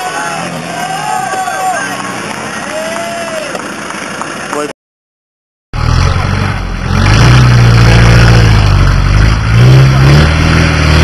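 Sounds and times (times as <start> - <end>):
truck engine revving: 5.8 - 11.0.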